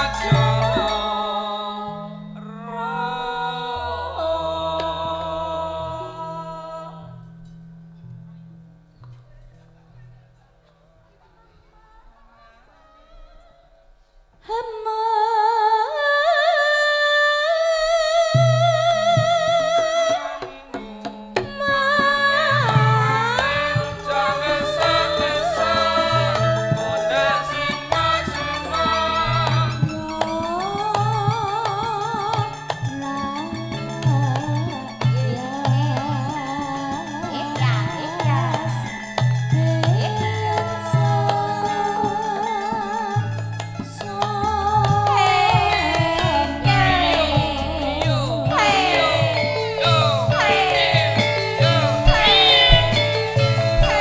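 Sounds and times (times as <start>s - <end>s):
sliding melody line: 0.0s - 5.7s, 19.3s - 39.0s, 45.0s - 54.0s
voice singing long wavering notes: 0.0s - 7.3s, 16.3s - 38.8s
low steady accompaniment: 0.0s - 10.9s, 17.9s - 54.0s
steady repeating bass: 45.6s - 54.0s
sharp drum strokes: 50.3s - 54.0s.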